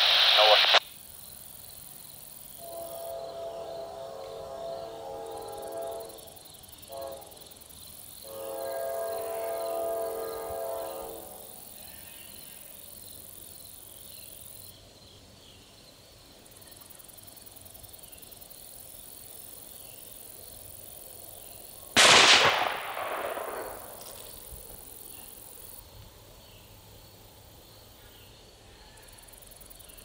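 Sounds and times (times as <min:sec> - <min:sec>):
faint insect chirping: 0:00.0 - 0:30.0
distant gunshot with echo: 0:22.0 - 0:24.3.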